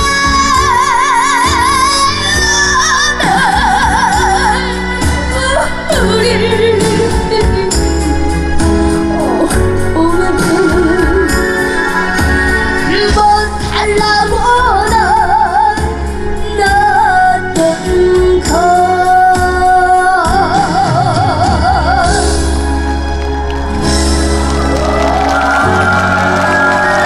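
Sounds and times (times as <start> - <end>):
backing band music: 0.0 - 27.0.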